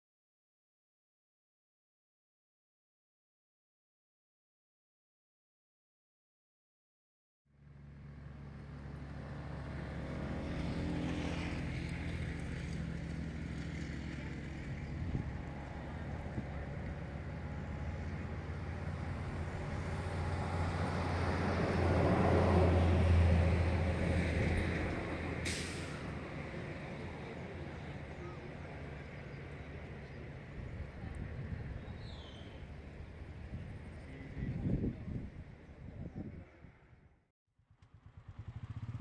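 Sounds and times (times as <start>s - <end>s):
road and wind noise: 7.5s - 39.0s
motorcycle engine running: 37.6s - 39.0s.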